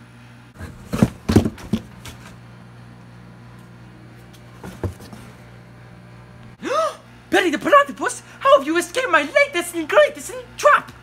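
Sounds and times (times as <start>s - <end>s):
steady low hum: 0.0s - 11.0s
knocks and thumps: 0.6s - 2.2s, 4.6s - 5.2s.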